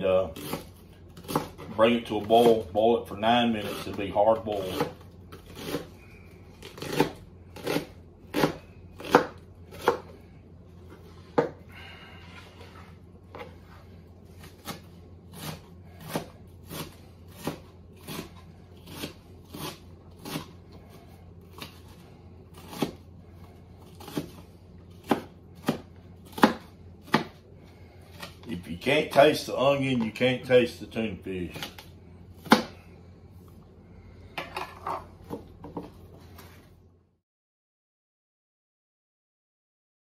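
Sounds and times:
knife chopping on wooden board: 0.4s - 2.7s, 3.6s - 5.9s, 6.6s - 10.2s, 11.3s - 11.6s, 14.4s - 20.6s, 22.6s - 23.0s, 23.9s - 27.4s, 32.4s - 32.8s.

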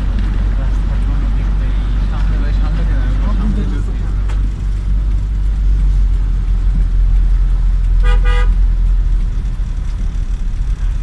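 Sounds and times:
car engine and road noise: 0.0s - 11.0s
car horn toots: 8.0s - 8.7s.

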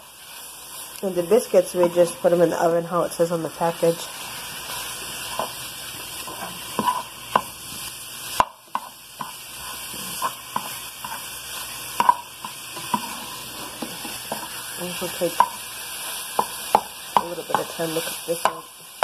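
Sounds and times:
sausage sizzling in a frying pan: 0.0s - 19.0s
utensil scraping and tapping pan: 12.0s - 14.6s.

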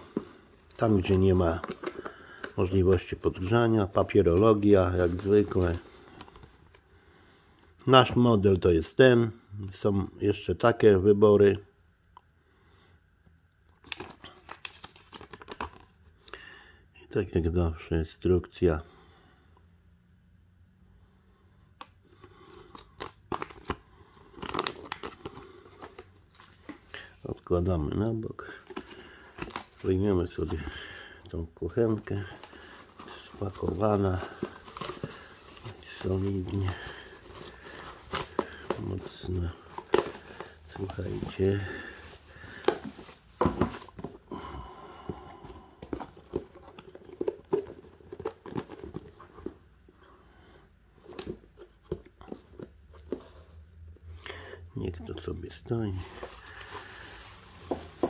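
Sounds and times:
paper rustling and crinkling: 0.0s - 6.8s, 13.8s - 15.9s, 23.0s - 27.2s, 28.4s - 44.3s, 45.4s - 49.6s, 55.8s - 58.0s.

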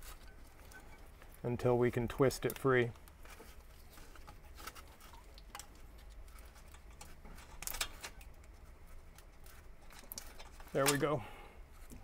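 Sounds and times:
rubber hose clicking and rubbing: 2.0s - 11.2s.

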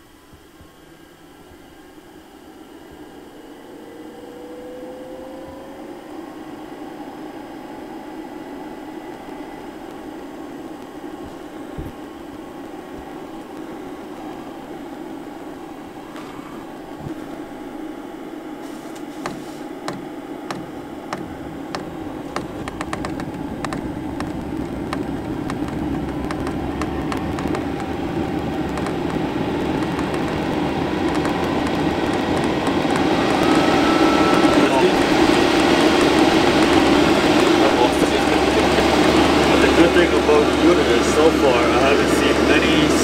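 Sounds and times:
heater blower fan humming: 0.0s - 43.0s
fuel pump ticking: 19.2s - 33.6s.

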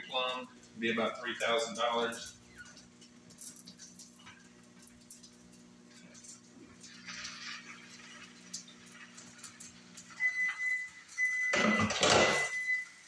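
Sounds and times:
smoke alarm beeping: 8.3s - 13.0s.

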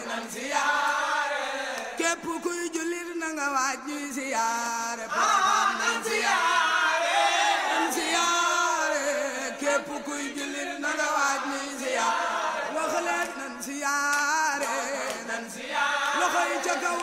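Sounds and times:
group chanting in chorus: 0.0s - 2.2s, 5.0s - 17.0s.

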